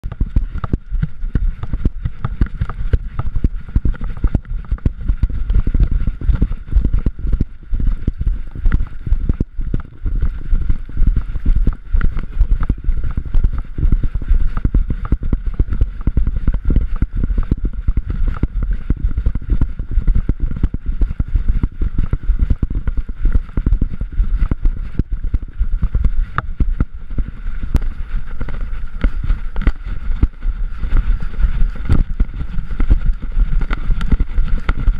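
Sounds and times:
thudding and low rumbling: 0.0s - 34.9s
wind on microphone: 0.0s - 34.9s.

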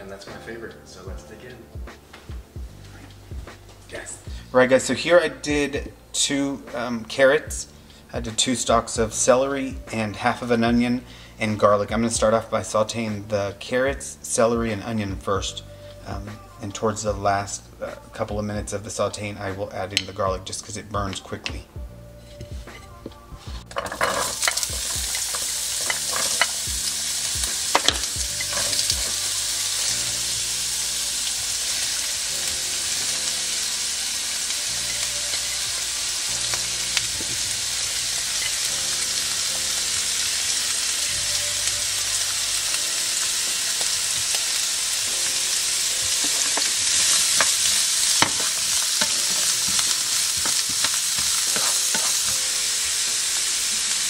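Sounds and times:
vegetables sizzling in frying pan: 23.7s - 54.0s.

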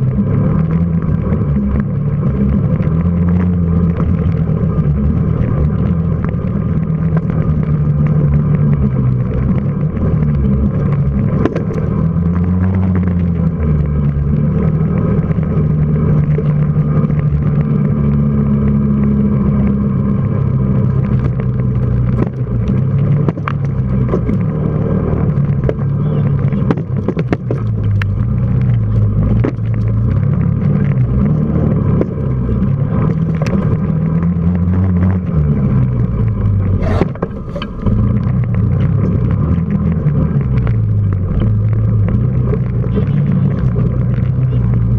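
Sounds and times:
quad bike engine revving: 0.0s - 44.9s.

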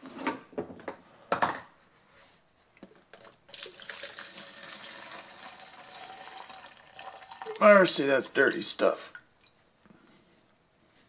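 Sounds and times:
fuel pouring into plastic tub: 3.2s - 7.6s.

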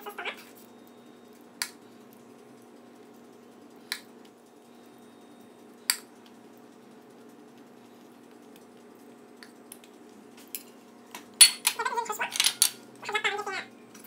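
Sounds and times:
plate and utensils clinking: 11.4s - 12.8s.

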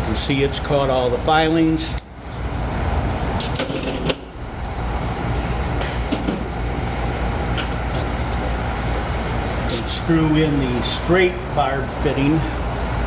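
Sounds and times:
workshop rumble: 0.0s - 13.0s
tools clattering on table: 3.4s - 4.2s.

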